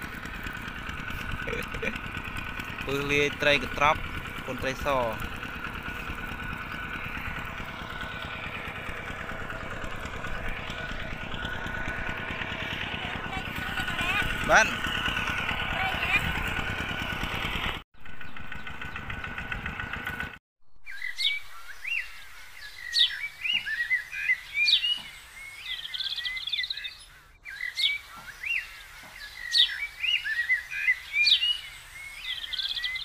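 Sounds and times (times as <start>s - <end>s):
birds chirping: 0.0s - 33.0s
steady droning noise: 0.1s - 17.4s
whistled bird notes: 20.6s - 33.0s.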